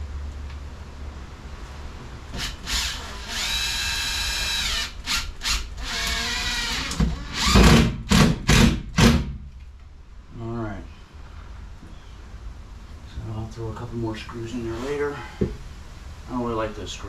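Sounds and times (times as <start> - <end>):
cordless drill driving screws: 2.4 - 8.2.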